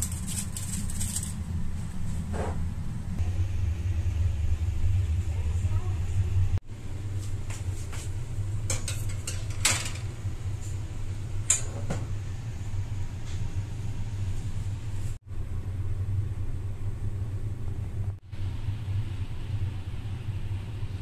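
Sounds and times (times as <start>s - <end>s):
steady low hum: 0.0s - 21.0s
metal tin clattering on oven rack: 8.7s - 10.1s.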